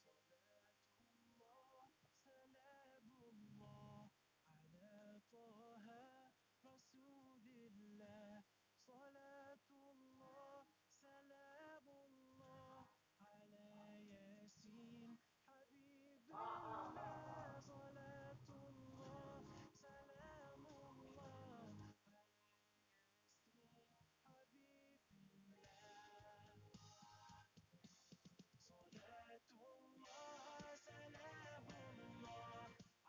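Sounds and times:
faint solo singing voice: 0:01.3 - 0:22.5, 0:28.6 - 0:32.8.

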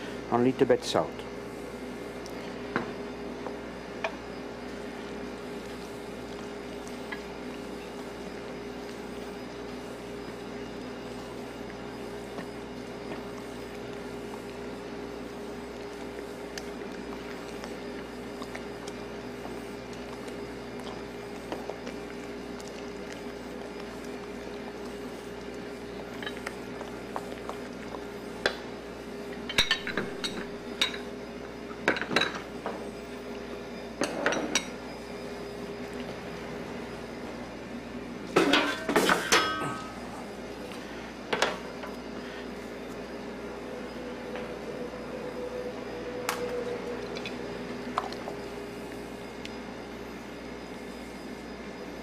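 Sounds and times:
low machine hum: 0:00.0 - 0:52.0
mixture stirred in metal bowl: 0:05.1 - 0:29.5
dishes and utensils clinking: 0:38.4 - 0:40.0.

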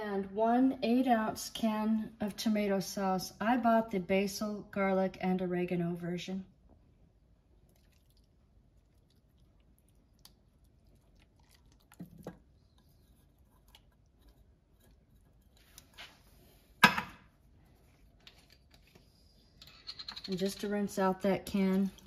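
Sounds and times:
sauce squishing out of a can: 0:07.6 - 0:16.3
tin can set down on counter: 0:16.8 - 0:17.2.

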